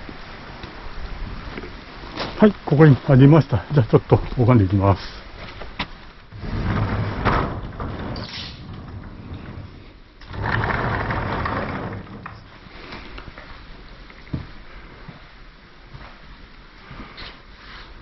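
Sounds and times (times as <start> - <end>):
wooden sliding door rumbling: 6.3 - 13.0.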